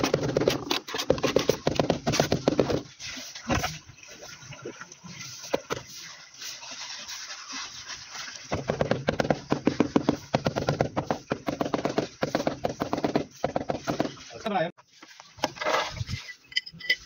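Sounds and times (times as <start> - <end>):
tile taps and scrapes: 8.5 - 14.1.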